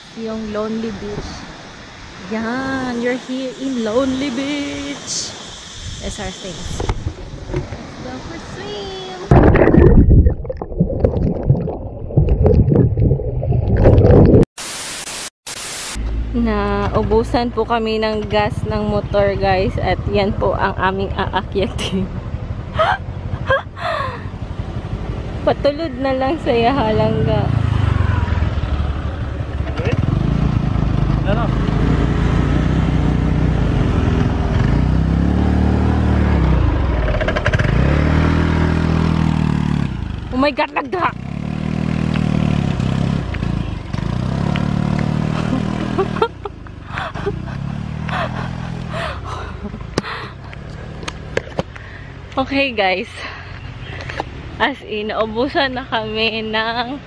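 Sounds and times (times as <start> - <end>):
muffled water gurgling and sloshing: 5.6 - 8.4, 9.2 - 14.5
static hiss: 14.6 - 16.0
scooter engine revving: 26.5 - 51.4.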